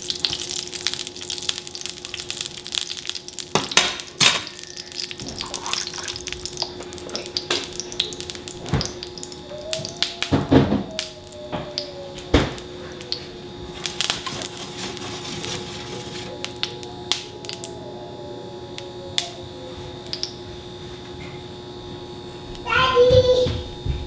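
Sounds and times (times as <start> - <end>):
fat crackling in a skillet: 0.0 - 17.8
faint steady hum: 0.0 - 24.0.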